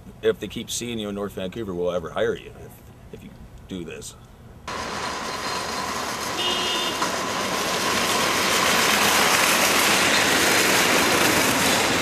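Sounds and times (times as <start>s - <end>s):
shopping cart wheels rattling: 7.1s - 12.0s.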